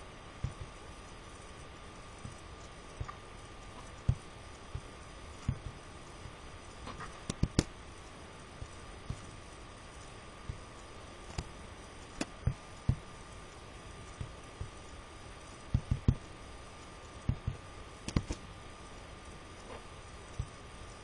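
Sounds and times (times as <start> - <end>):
faint steady hiss: 0.0 - 21.0
computer mouse clicks: 6.9 - 7.7, 17.3 - 18.4.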